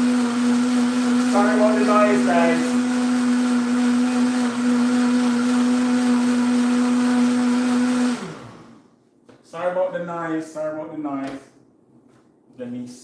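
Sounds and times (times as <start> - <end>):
blender motor running: 0.0 - 8.9.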